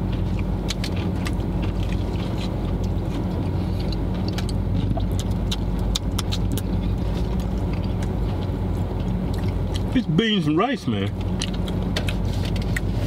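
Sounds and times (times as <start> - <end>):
car engine idling inside cabin: 0.0 - 13.0
chewing and handling food: 0.0 - 13.0.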